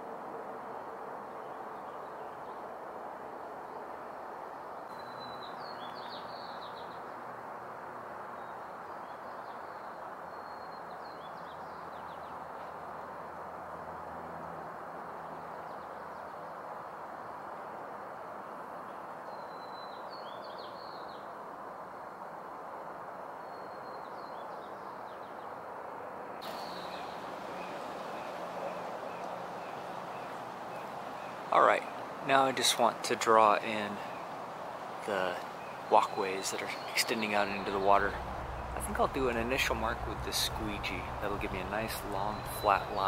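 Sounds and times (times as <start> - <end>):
songbird chirping: 4.8 - 7.4, 8.2 - 13.4, 18.4 - 21.4, 26.4 - 43.0
outdoor rushing hiss: 26.4 - 32.8.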